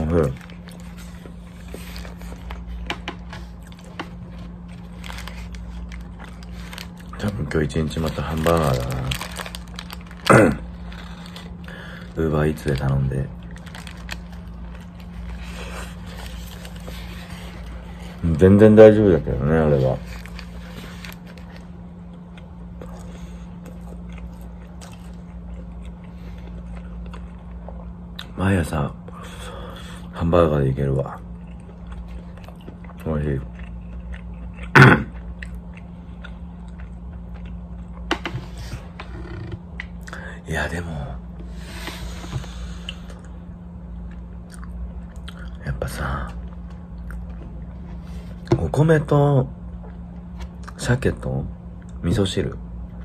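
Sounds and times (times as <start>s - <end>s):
paper wrapper crinkling: 0.0s - 18.4s, 19.6s - 21.8s
steady low hum: 0.0s - 53.0s
chewing food: 20.1s - 28.4s, 31.1s - 40.2s, 42.4s - 45.6s.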